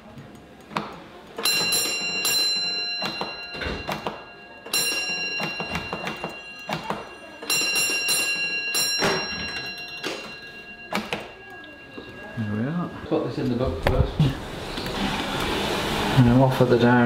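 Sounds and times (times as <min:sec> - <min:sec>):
signal box bell ringing: 0:01.4 - 0:14.4.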